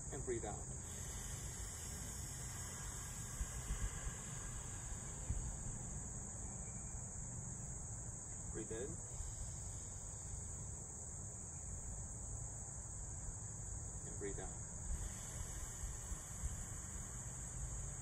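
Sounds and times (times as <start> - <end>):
insects droning: 0.0 - 18.0.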